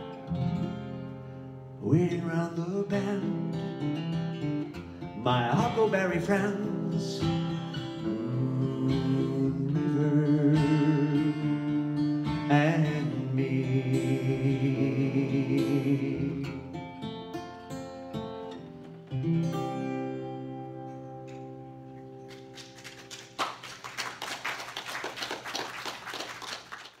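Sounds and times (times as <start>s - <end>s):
acoustic guitar: 0.0s - 26.0s
applause: 22.3s - 27.0s.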